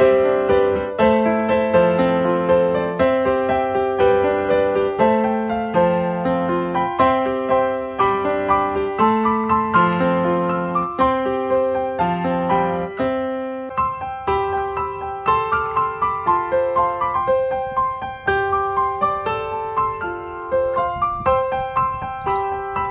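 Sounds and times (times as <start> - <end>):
gentle piano music: 0.0 - 22.9.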